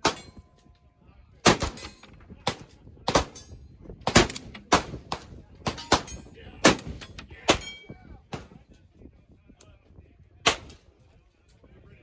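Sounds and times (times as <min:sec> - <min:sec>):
rifle gunshots: 0:01.4 - 0:03.4, 0:04.0 - 0:07.7, 0:10.5 - 0:10.8.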